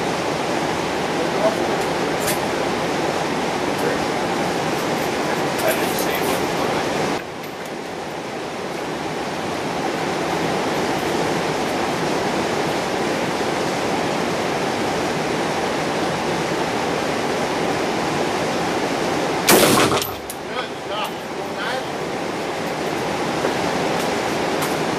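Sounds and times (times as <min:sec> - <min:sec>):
steady rushing noise: 0:00.0 - 0:24.9
rifle shot: 0:19.5 - 0:20.3.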